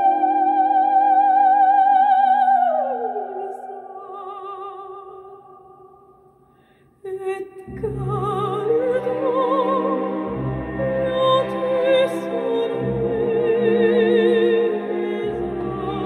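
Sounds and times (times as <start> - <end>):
operatic singing: 7.1 - 16.0.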